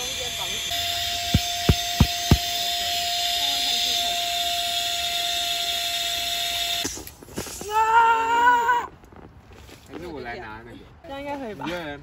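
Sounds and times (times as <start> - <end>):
electric air pump humming: 0.7 - 2.6.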